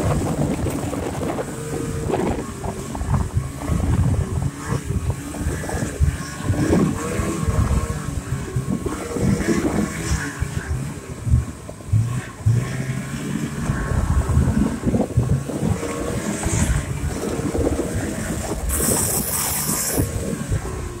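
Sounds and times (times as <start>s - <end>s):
snowmobile engine running: 0.0s - 21.0s
wind buffeting microphone: 0.0s - 21.0s
sharp jolts: 17.6s - 20.3s
burst of hiss: 18.7s - 20.2s.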